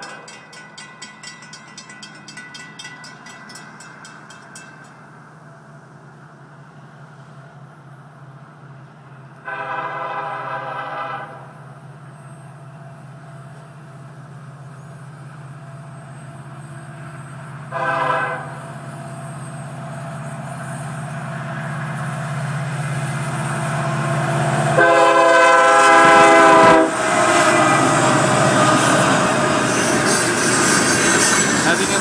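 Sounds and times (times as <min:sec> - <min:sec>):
diesel locomotive engine hum: 0:00.0 - 0:32.0
train wheel noise: 0:00.0 - 0:32.0
train air horn blasts: 0:09.4 - 0:11.6, 0:17.7 - 0:18.6, 0:24.8 - 0:27.9.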